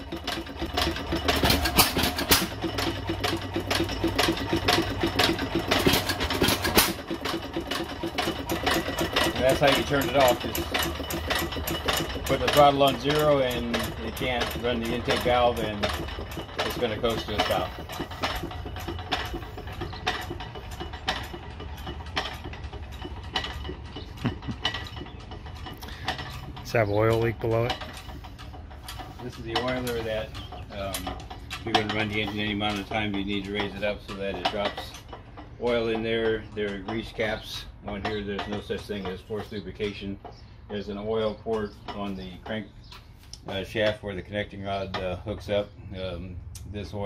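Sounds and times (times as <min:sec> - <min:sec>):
valve gear clatter: 0:00.0 - 0:44.0
engine coasting down: 0:00.0 - 0:47.0.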